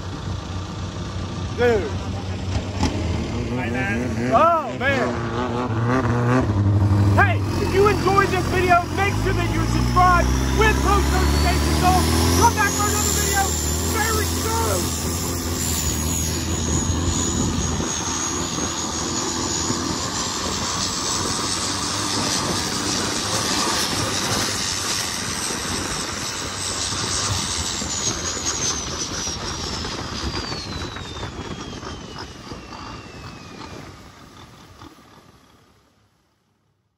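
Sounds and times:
boat engine running at speed: 0:00.0 - 0:36.9
high whine sliding down: 0:03.2 - 0:23.2.

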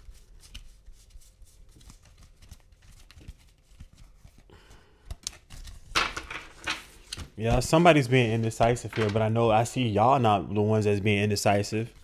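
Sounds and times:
cards shuffling: 0:00.0 - 0:07.7.

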